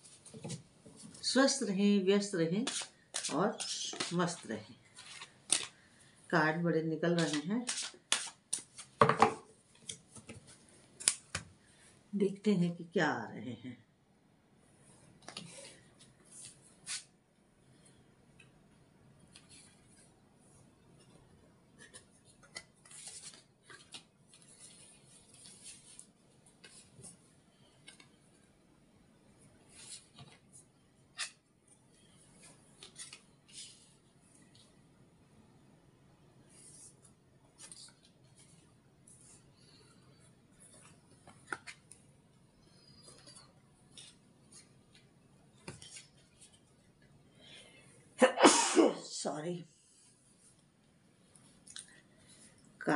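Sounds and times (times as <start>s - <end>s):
cards shuffled and dealt on cloth: 2.6s - 5.8s, 7.2s - 9.0s, 15.2s - 17.1s, 21.8s - 27.2s, 43.0s - 46.6s
cards tapping and clicking: 5.5s - 5.8s.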